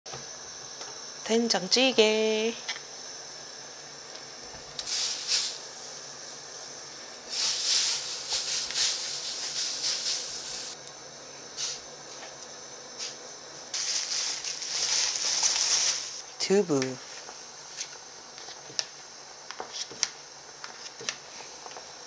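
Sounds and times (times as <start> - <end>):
plastic bag rustling: 13.7 - 16.2.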